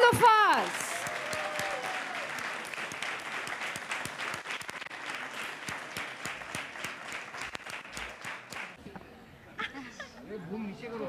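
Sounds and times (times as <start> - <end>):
audience applauding: 0.2 - 8.8.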